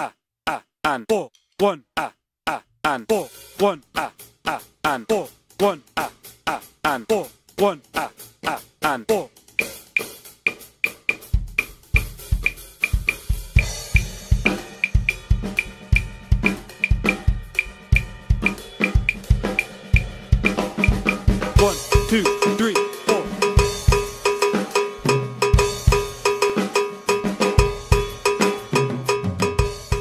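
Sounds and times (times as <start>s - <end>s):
acoustic drum kit groove: 3.1s - 30.0s
ringing cowbell pattern: 10.8s - 11.3s, 11.9s - 13.3s, 13.9s - 30.0s
metronome click: 10.8s - 13.3s, 14.0s - 16.1s, 16.8s - 20.1s, 20.8s - 21.2s.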